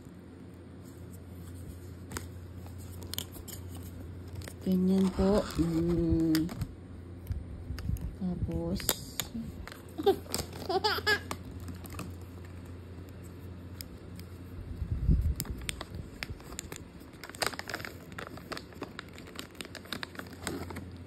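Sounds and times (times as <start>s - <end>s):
plastic pieces clicking and crinkling: 15.4s - 20.9s.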